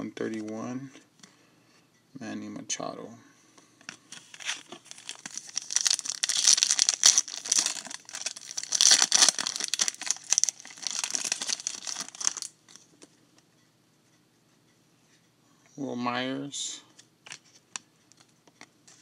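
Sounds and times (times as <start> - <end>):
foil wrapper crinkling and tearing: 4.2 - 12.6.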